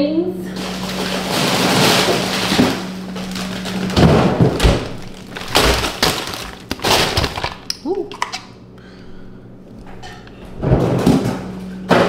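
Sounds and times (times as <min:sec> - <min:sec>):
plastic bags crinkling: 0:00.5 - 0:08.5
dull thuds: 0:00.9 - 0:07.6.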